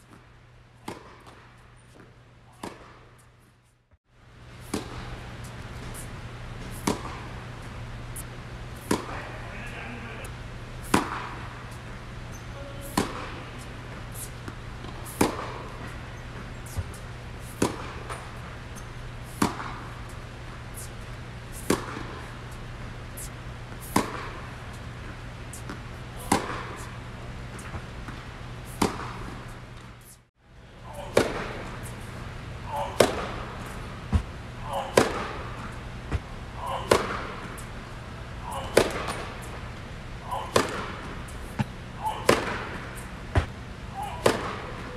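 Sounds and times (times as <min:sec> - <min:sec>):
steady low hum: 0:00.0 - 0:44.9
tennis racquet hitting ball: 0:00.8 - 0:03.1, 0:04.6 - 0:07.4, 0:08.2 - 0:09.4, 0:10.8 - 0:11.8, 0:12.8 - 0:16.0, 0:16.6 - 0:18.3, 0:19.2 - 0:21.0, 0:21.6 - 0:22.3, 0:23.2 - 0:24.6, 0:25.5 - 0:27.0, 0:28.7 - 0:29.4, 0:31.0 - 0:32.1, 0:32.8 - 0:37.6, 0:38.5 - 0:39.6, 0:40.3 - 0:44.9.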